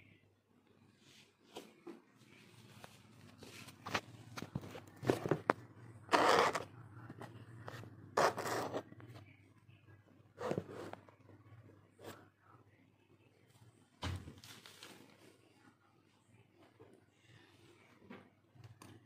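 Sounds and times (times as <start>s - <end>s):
scraping rubs: 6.1s - 6.7s, 7.6s - 8.9s.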